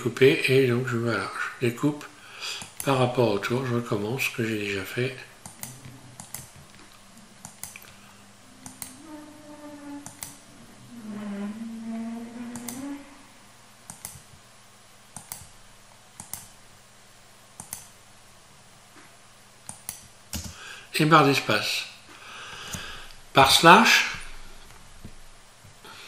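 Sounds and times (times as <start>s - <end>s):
computer mouse clicking: 2.6s - 2.9s, 5.4s - 8.0s, 8.6s - 9.0s, 10.0s - 10.4s, 12.5s - 12.8s, 13.9s - 14.4s, 15.1s - 15.6s, 16.2s - 16.6s, 17.6s - 18.0s, 19.6s - 20.6s.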